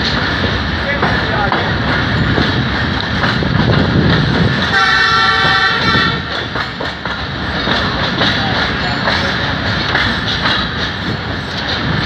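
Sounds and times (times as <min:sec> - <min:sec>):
train wheels running on track: 0:00.0 - 0:12.0
train air horn: 0:04.7 - 0:06.3.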